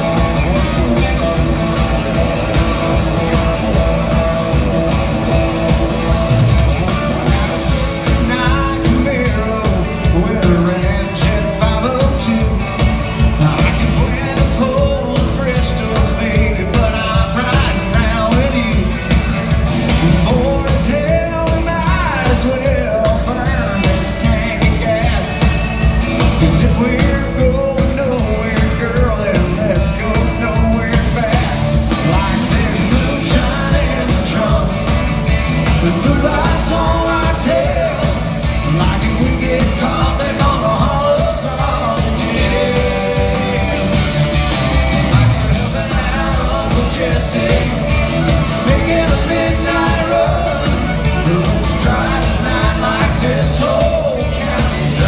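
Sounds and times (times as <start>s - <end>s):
live country band playing: 0.0s - 55.0s
man singing: 6.9s - 55.0s.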